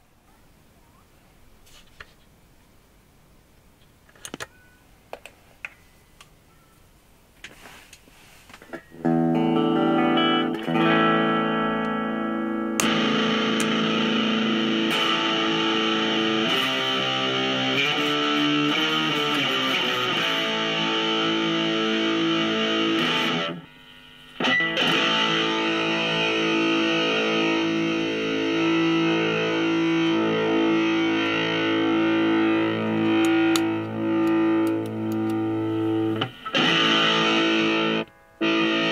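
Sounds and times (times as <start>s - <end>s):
electric guitar chords: 8.9s - 38.9s.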